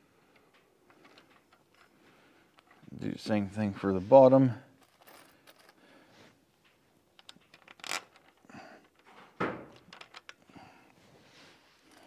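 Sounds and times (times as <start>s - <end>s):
bolt and nut clicking and scraping: 0.2s - 2.9s, 7.1s - 10.5s.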